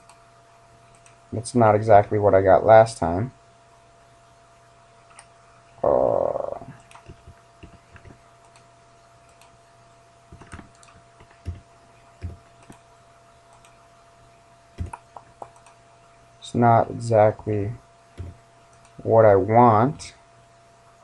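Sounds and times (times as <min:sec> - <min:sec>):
faint electrical hum: 0:00.0 - 0:21.0
man humming hmm: 0:05.8 - 0:06.8
mouse and keyboard clicks: 0:14.8 - 0:15.8.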